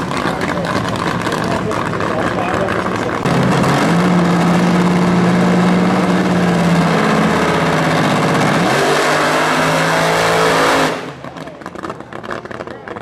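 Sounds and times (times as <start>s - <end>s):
dragster engine idling: 0.0s - 8.6s, 11.0s - 13.0s.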